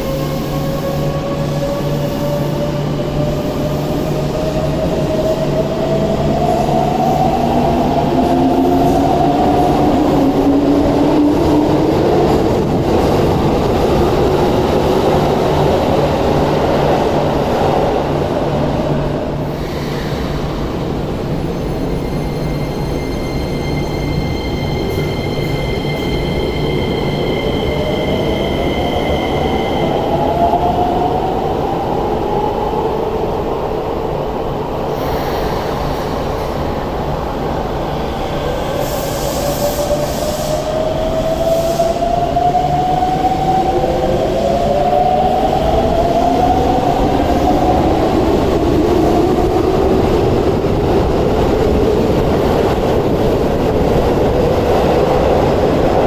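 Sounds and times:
train wheel and rail rumble: 0.0s - 56.0s.

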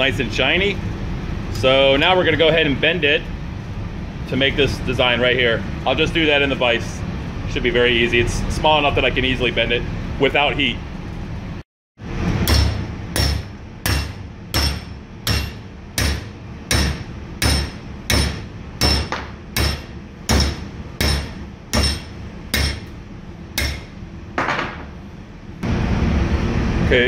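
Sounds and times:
hammer striking steel bar: 12.4s - 23.0s, 23.6s - 23.9s.

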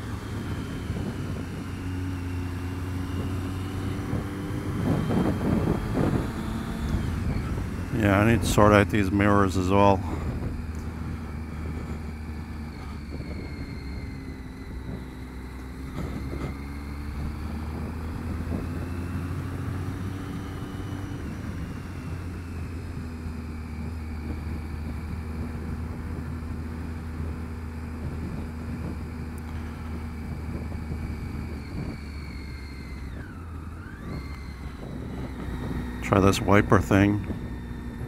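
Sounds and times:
motorcycle engine running: 0.0s - 38.0s
wind noise: 0.0s - 38.0s
wet road noise: 5.7s - 23.2s.

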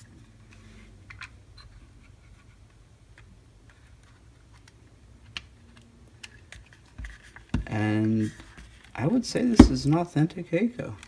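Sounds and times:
low steady hum: 0.0s - 11.0s
small clicks and rubbing: 0.3s - 9.0s.

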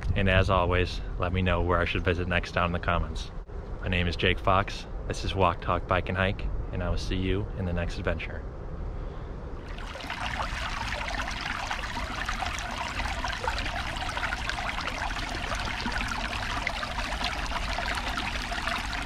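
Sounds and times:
stream babbling over stones: 9.6s - 19.0s.

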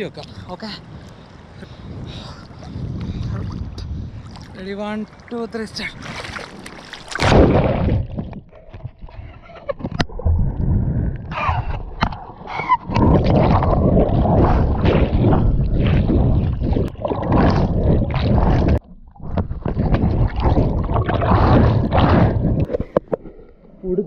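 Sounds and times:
underwater rushing and bubbling: 5.9s - 24.0s.

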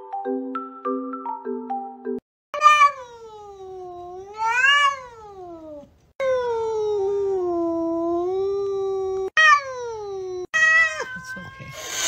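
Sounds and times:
cats yowling: 2.6s - 5.8s, 10.5s - 11.8s.

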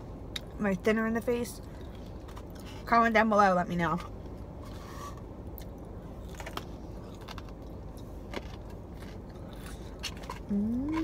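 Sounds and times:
person chewing crispy food: 5.5s - 11.0s
person humming: 10.5s - 11.0s.

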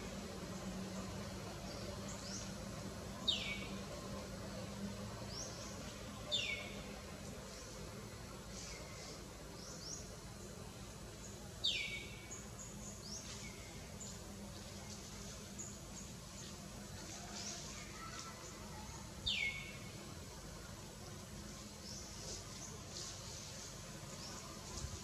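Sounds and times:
low steady hum: 0.0s - 25.0s
birds chirping: 0.1s - 4.0s, 8.4s - 20.0s.

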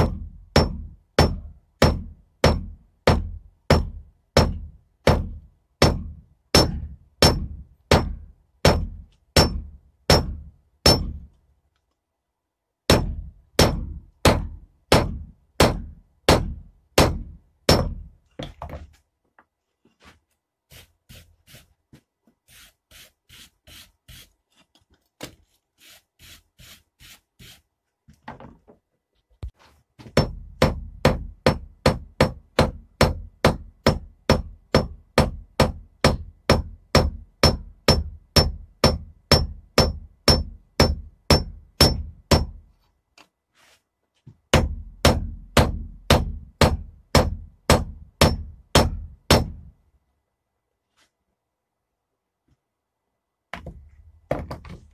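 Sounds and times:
hammer striking steel on anvil: 0.0s - 4.5s, 5.8s - 11.3s, 12.9s - 18.0s, 36.0s - 42.5s.

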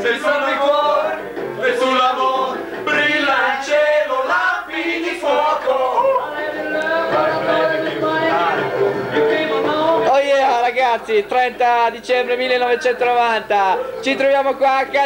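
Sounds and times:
group of people singing: 0.0s - 10.5s.

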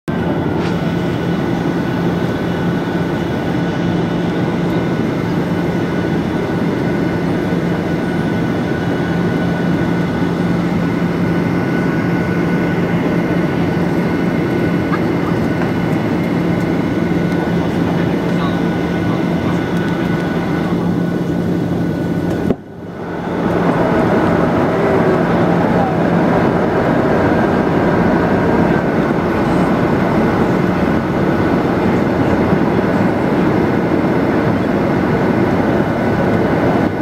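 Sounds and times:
constant low hum: 0.1s - 37.0s
jet engines roar in cabin: 0.1s - 37.0s.

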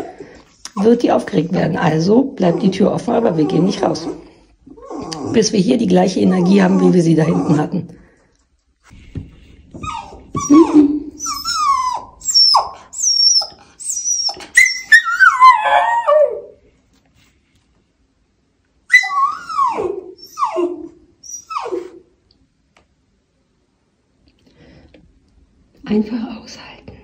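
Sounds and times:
dog whining: 2.3s - 5.5s, 6.2s - 7.8s, 9.8s - 16.6s, 18.9s - 22.1s.

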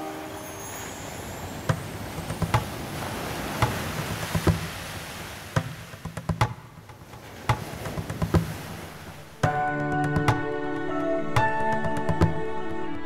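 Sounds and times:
wood-block knocks: 3.6s - 4.7s, 5.6s - 8.6s
animation soundtrack music: 6.0s - 13.0s.

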